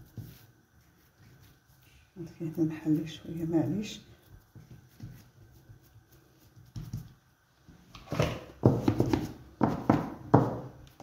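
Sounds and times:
hands shaping dough on table: 0:00.0 - 0:11.0.

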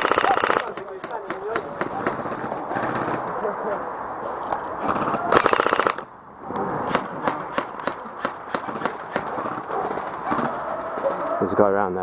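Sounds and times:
airsoft gun full-auto burst: 0:00.0 - 0:01.2, 0:05.3 - 0:06.0, 0:06.9 - 0:09.7.

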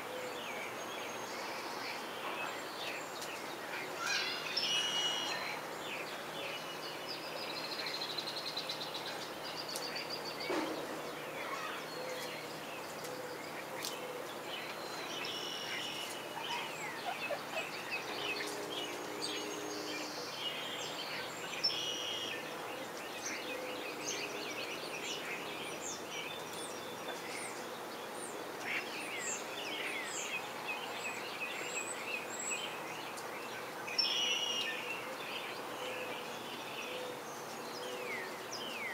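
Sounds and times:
small birds chirping: 0:00.0 - 0:38.9
chickens calling: 0:15.6 - 0:19.4.

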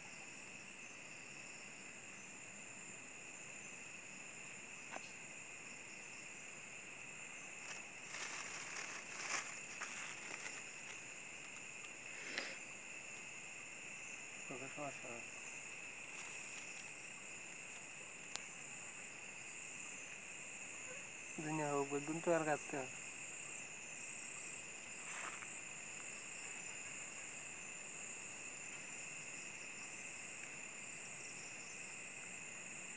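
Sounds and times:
night insects chorus: 0:00.0 - 0:32.9
plastic bag rustling: 0:07.6 - 0:11.6, 0:16.1 - 0:16.8.

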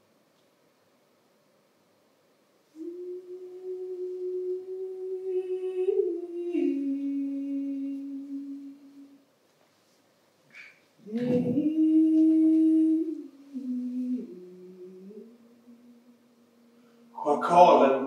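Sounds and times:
person humming long notes: 0:02.7 - 0:09.2, 0:11.0 - 0:17.6.

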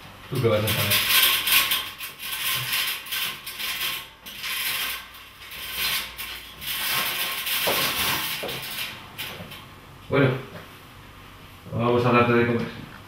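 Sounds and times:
metal ladder rattling and creaking: 0:00.3 - 0:09.7.

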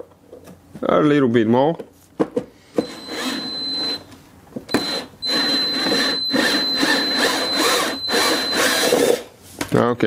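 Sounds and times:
cordless drill boring into plastic: 0:02.8 - 0:04.0, 0:04.7 - 0:09.2.

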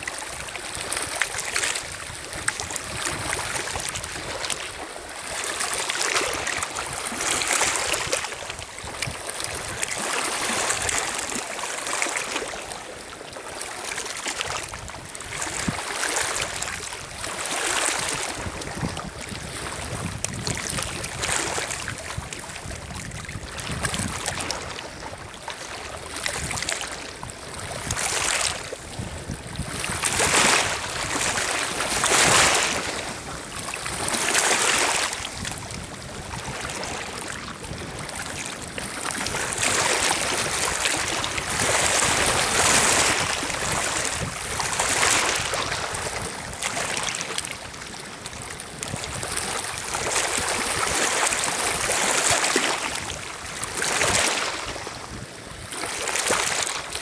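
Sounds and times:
waves lapping on pebble shore: 0:00.0 - 0:57.0.

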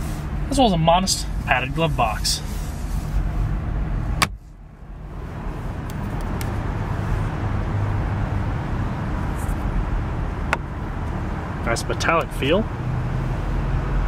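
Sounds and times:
steady low rumble: 0:00.0 - 0:14.0
sun visor clicks: 0:04.2 - 0:04.5.

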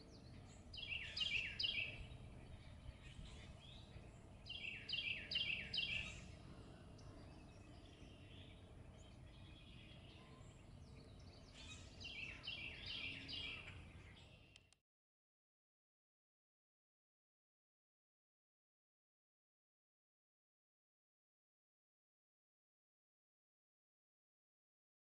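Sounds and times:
low outdoor rumble: 0:00.0 - 0:14.6
songbird singing: 0:00.0 - 0:14.8.

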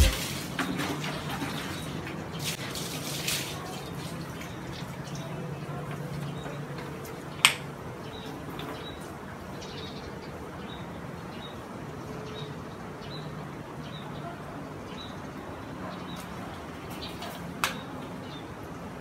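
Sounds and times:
water running into bucket: 0:00.0 - 0:04.9.

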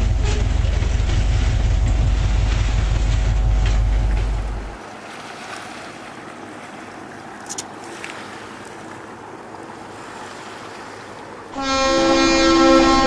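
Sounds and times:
locomotive horn chord: 0:00.0 - 0:04.8, 0:11.5 - 0:13.0
water: 0:00.0 - 0:13.0.

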